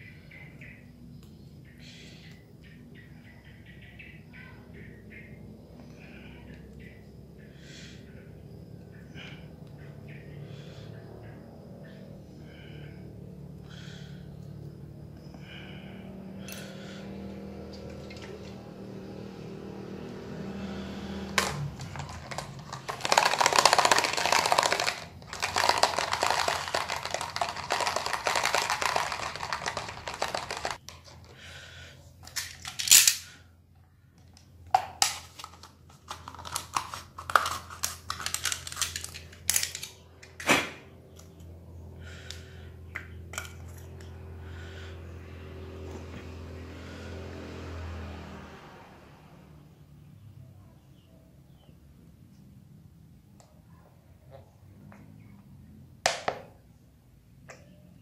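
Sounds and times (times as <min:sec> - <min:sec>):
paper cup rattling: 0:21.3 - 0:31.4, 0:34.7 - 0:40.4.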